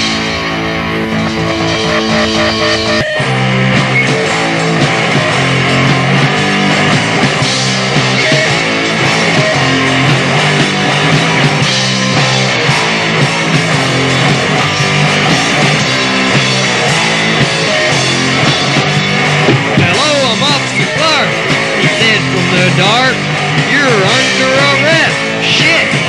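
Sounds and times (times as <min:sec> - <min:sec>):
high sliding notes: 0:00.0 - 0:04.2
punk band playing: 0:00.0 - 0:26.0.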